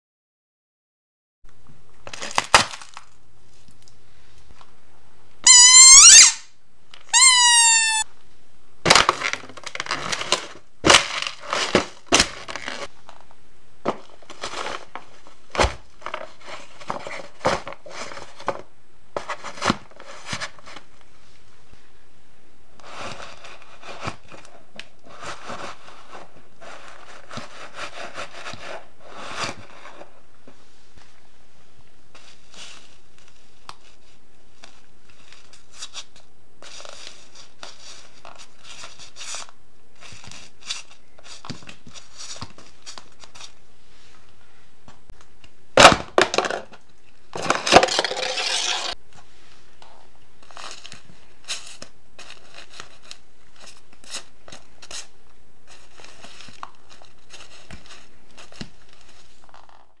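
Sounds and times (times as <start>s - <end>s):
heel crushing squishy toys: 2.0s - 3.2s, 45.8s - 48.8s
plastic cup cracking and crumpling: 2.0s - 3.9s, 8.9s - 13.2s, 45.8s - 49.0s.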